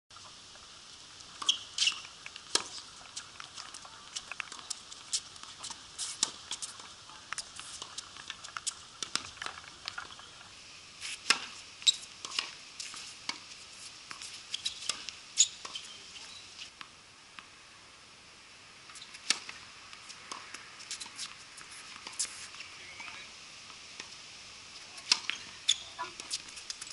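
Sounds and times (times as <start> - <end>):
racket hitting tennis ball: 1.4 - 2.9, 11.2 - 11.6, 12.2 - 12.6, 25.0 - 25.4
tennis ball bouncing: 1.4 - 2.9, 11.2 - 12.6, 25.0 - 25.4
small ticks and scuffs: 1.4 - 10.4, 11.0 - 16.8, 20.0 - 22.8, 24.8 - 26.9.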